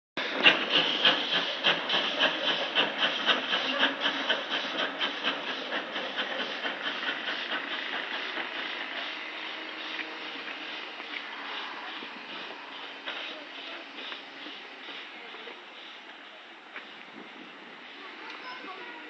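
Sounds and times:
steam hiss: 0.2 - 19.0
steam locomotive chuffing: 0.2 - 19.0.

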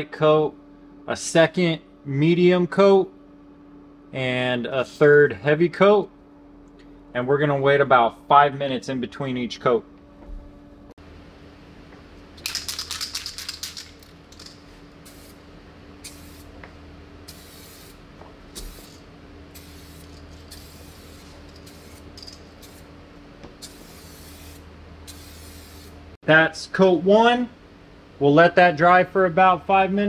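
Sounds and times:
aerosol can mixing ball rattling: 12.4 - 15.4
short hissing spray: 15.0 - 15.4, 16.0 - 16.5, 17.3 - 18.0, 18.6 - 19.0, 23.6 - 26.0.

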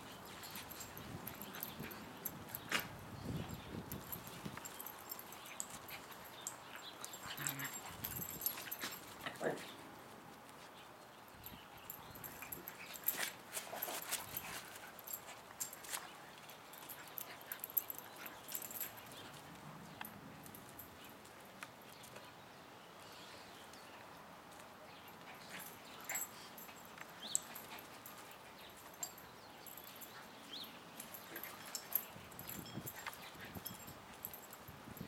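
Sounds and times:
paws scuffling on paving: 12.2 - 22.3.

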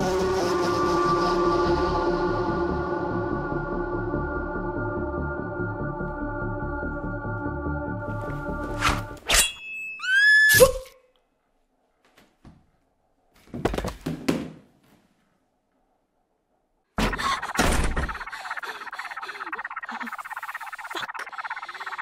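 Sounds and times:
choking gasps: 17.0 - 22.0.

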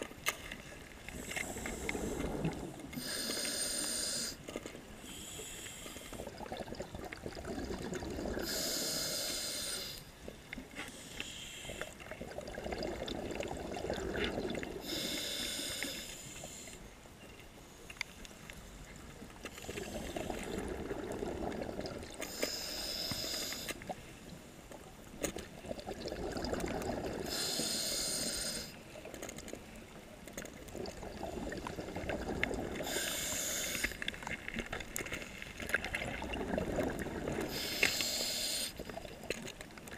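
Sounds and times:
exhaled air bubbling: 1.0 - 4.4, 5.1 - 10.7, 11.7 - 15.9, 19.6 - 24.0, 25.3 - 29.1, 30.4 - 39.6
regulator inhale hiss: 1.1 - 6.3, 8.4 - 10.1, 10.8 - 12.1, 14.8 - 17.0, 22.2 - 23.9, 27.2 - 28.8, 32.8 - 34.2, 37.5 - 39.0.

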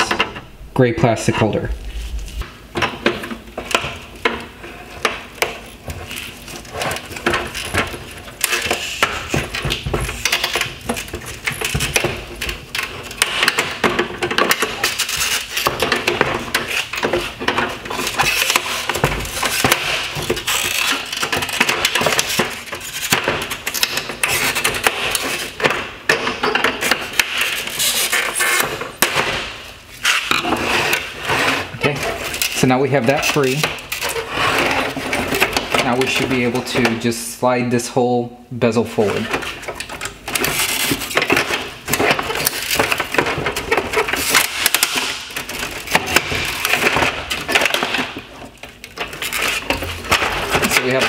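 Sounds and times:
plastic scraping on plastic: 1.3 - 37.1, 39.0 - 51.0.

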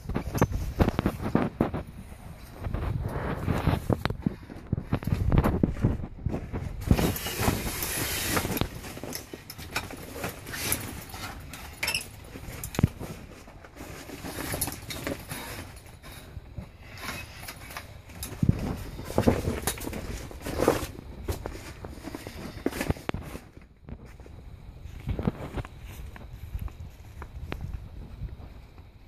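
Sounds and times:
tent fabric rustling: 0.0 - 24.3.

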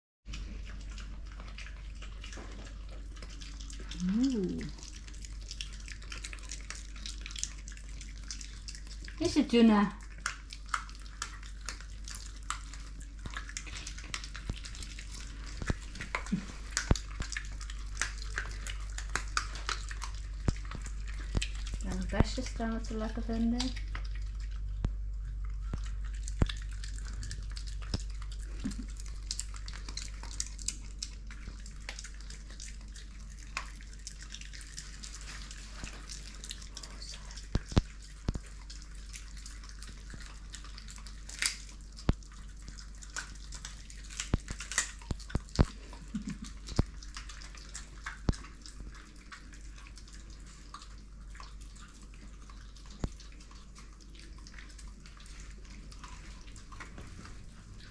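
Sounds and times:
dogs chewing wet food: 0.2 - 57.9
steady low hum: 0.3 - 57.9
sharp clicks and crunches: 25.7 - 48.8.

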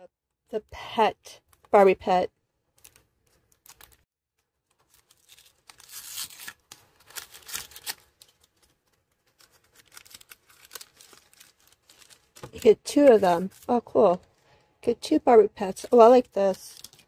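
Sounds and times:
toy packaging tearing and crinkling: 2.8 - 4.0, 4.6 - 13.7, 16.3 - 17.0.

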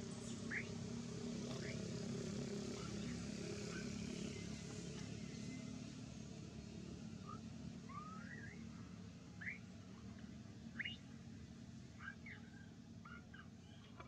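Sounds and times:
squeaky chirps: 9.4 - 9.6.

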